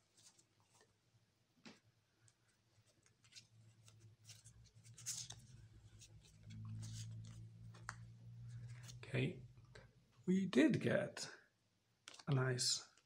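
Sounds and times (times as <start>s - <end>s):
cards being handled: 2.8s - 9.0s.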